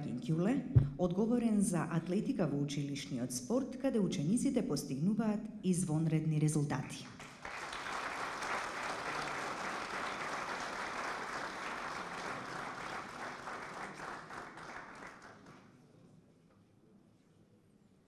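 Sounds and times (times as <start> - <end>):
audience applauding: 7.3 - 15.6.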